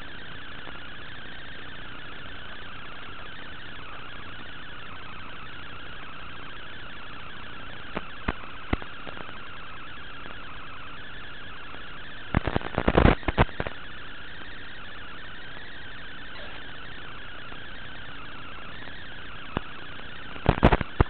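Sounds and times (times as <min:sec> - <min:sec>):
drone motors whining: 0:00.0 - 0:21.0
sharp ticks: 0:07.9 - 0:09.5, 0:11.7 - 0:21.0.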